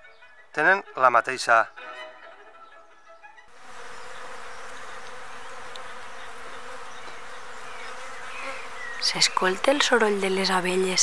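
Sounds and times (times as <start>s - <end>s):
bees buzzing: 1.7s - 11.0s.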